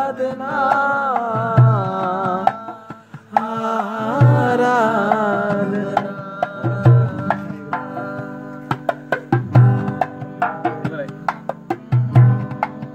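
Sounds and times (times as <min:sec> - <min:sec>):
acoustic guitar chords: 0:00.0 - 0:12.9
hand drum slaps and thumps: 0:00.0 - 0:12.9.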